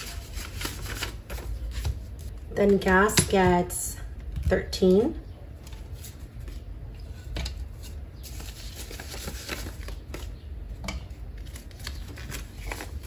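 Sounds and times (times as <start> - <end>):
paper bills rustling: 0.0 - 2.8, 8.2 - 10.4, 11.3 - 13.0.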